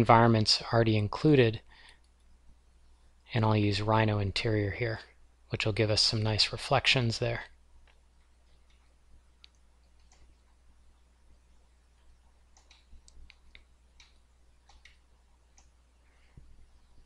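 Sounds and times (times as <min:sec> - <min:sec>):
low steady hum: 0:00.0 - 0:17.0
computer mouse clicks: 0:07.8 - 0:10.6, 0:12.0 - 0:15.8.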